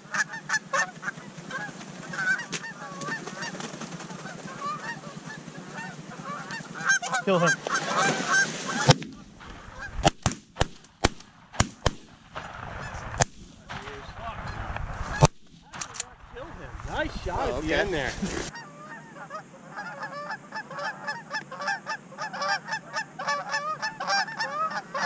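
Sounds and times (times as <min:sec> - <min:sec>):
geese honking: 0:00.0 - 0:10.1, 0:17.3 - 0:25.0
shotgun shots: 0:10.0 - 0:14.2.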